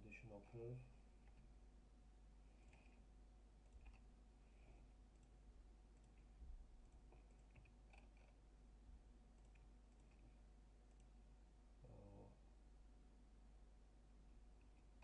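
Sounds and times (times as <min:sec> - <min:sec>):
low steady hum: 0:00.0 - 0:15.0
computer mouse clicks: 0:02.6 - 0:03.0, 0:03.6 - 0:04.1, 0:05.1 - 0:05.4, 0:06.0 - 0:08.4, 0:09.3 - 0:11.2.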